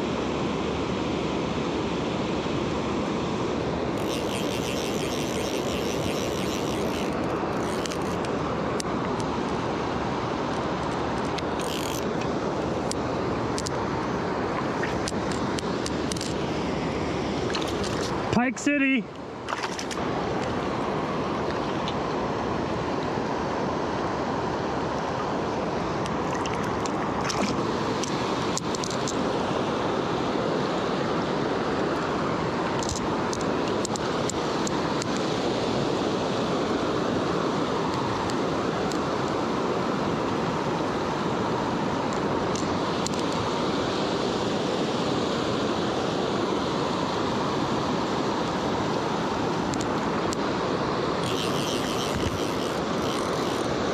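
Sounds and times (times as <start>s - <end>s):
river water rushing over rocks: 0.0s - 53.9s.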